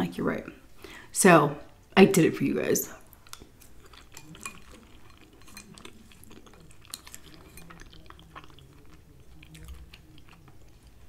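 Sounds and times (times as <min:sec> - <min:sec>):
soft chewing: 0:02.9 - 0:11.0
metal spoon scraping glass bowl: 0:04.2 - 0:06.3, 0:06.9 - 0:07.8.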